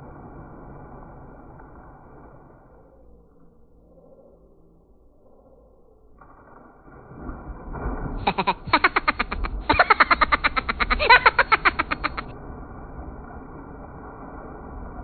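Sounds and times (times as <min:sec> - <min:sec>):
body splashing into pool: 0:06.8 - 0:12.3
rapid pulsing laughter: 0:08.2 - 0:12.3.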